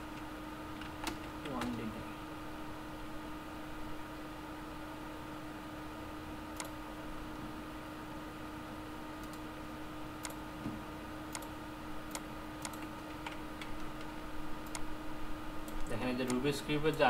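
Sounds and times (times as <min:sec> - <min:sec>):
low electrical hum: 0:00.0 - 0:17.0
computer mouse clicking: 0:06.6 - 0:06.8, 0:09.2 - 0:09.4, 0:10.2 - 0:10.4, 0:11.3 - 0:11.5, 0:12.1 - 0:14.9, 0:15.6 - 0:17.0.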